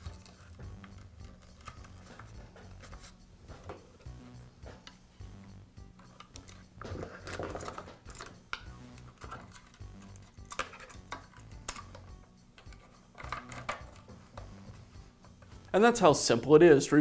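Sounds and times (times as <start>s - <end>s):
hands clicking plastic fittings: 0.0s - 2.4s, 6.0s - 14.1s
faint background music: 0.0s - 17.0s.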